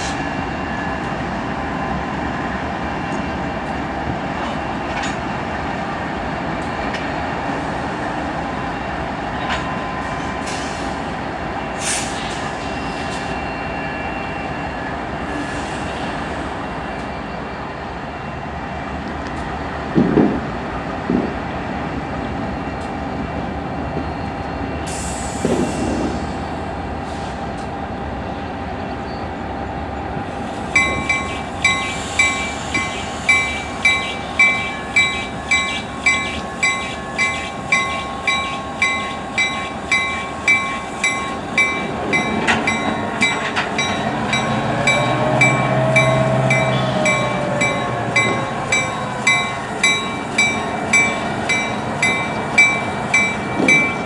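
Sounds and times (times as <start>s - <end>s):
diesel locomotives rumbling: 0.0s - 54.0s
locomotive bell ringing: 30.8s - 54.0s.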